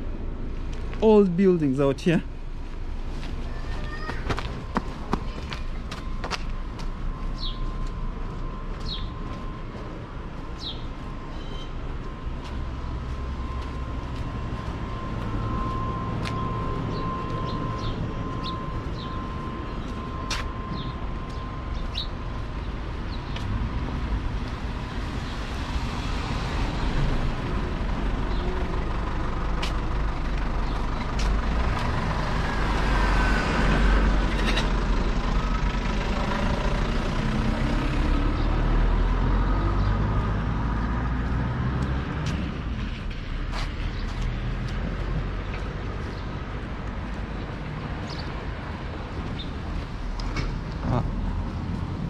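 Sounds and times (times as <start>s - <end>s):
low street rumble: 0.0s - 52.0s
car passing by: 31.5s - 34.6s.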